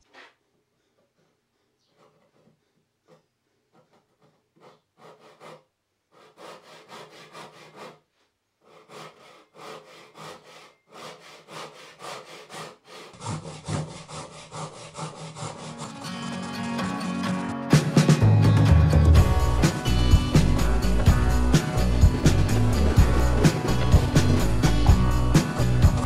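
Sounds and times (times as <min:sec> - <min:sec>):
handsaw rasping through wood: 0:03.7 - 0:08.0, 0:08.6 - 0:16.8, 0:19.4 - 0:26.0.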